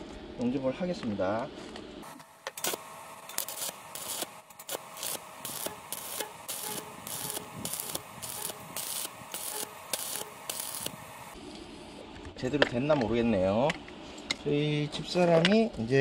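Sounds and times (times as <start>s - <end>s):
arc welding crackle and hiss: 2.0s - 11.9s.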